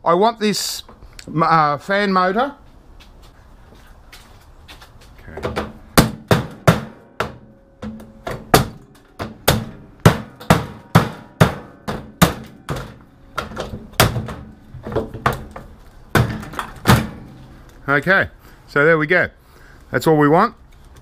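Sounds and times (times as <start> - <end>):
hammer blows on metal: 6.0 - 14.5.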